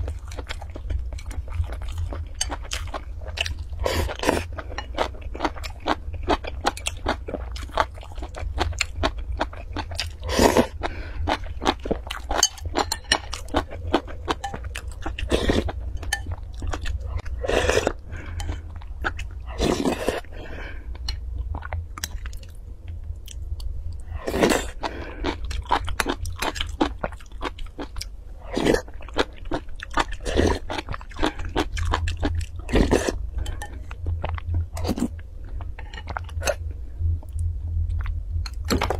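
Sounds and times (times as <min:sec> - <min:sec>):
low hum: 0:00.0 - 0:38.9.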